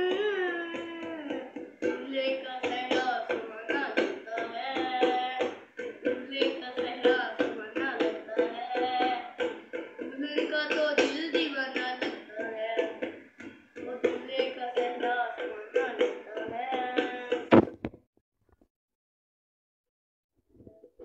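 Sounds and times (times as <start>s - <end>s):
child singing: 0.0s - 13.1s, 13.8s - 17.5s
fingers drumming on metal bowl: 0.0s - 17.8s.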